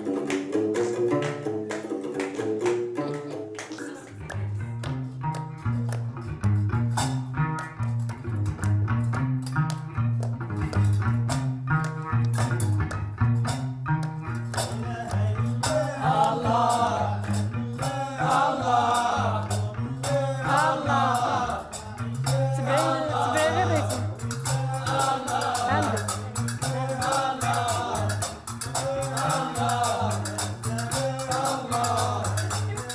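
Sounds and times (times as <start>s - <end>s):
clacking hand percussion: 0.0s - 32.9s
hand drum beat: 0.0s - 32.9s
low bass notes: 4.2s - 32.9s
group singing: 14.6s - 32.9s.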